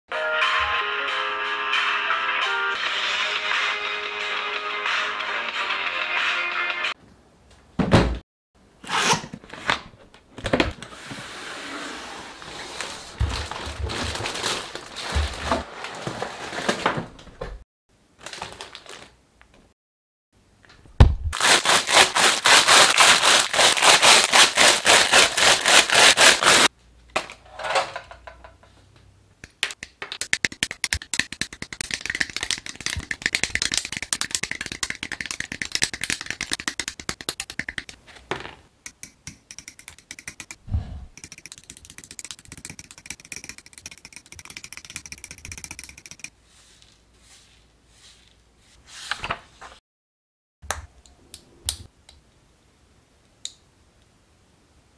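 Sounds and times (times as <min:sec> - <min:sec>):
cardboard and plastic bags rustling: 0:12.4 - 0:17.2, 0:18.2 - 0:19.2, 0:21.4 - 0:26.7.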